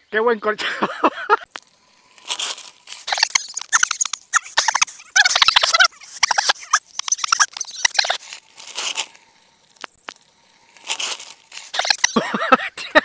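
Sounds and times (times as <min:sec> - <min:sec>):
bike tyres crunching on gravel: 0:01.6 - 0:05.0, 0:06.8 - 0:12.2
reeds brushing: 0:01.8 - 0:10.0, 0:10.6 - 0:12.2
sharp clicks: 0:02.9 - 0:12.2.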